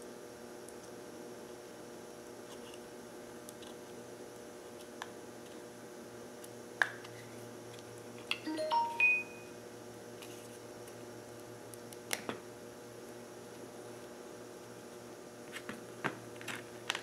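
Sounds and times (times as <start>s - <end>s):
brief ringing tones: 8.5s - 9.6s.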